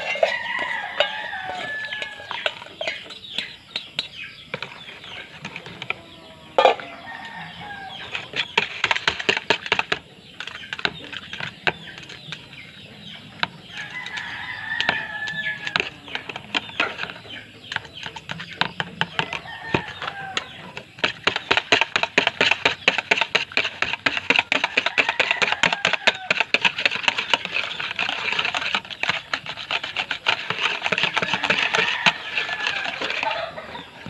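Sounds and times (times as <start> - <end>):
rooster crowing: 0.0 - 3.0, 6.0 - 8.2, 13.8 - 16.1, 19.2 - 20.8, 24.7 - 26.5, 31.1 - 34.0
chickens clucking: 0.0 - 34.0
spoon scraping plastic bowl: 0.0 - 34.0.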